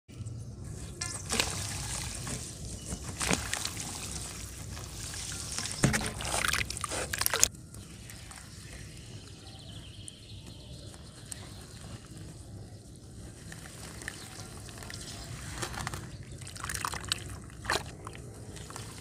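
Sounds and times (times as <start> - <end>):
earth crumbs pattering into water: 1.0 - 9.1, 13.4 - 19.0.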